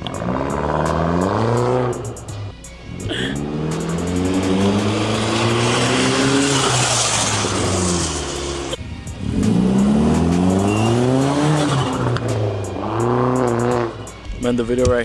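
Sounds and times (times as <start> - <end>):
car engine revving past: 3.3 - 14.1.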